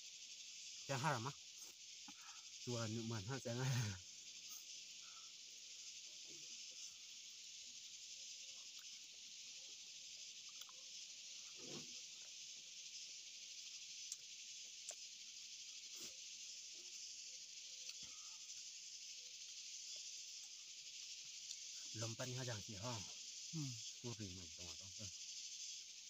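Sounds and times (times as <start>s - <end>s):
insect chorus hissing: 0.0s - 26.0s.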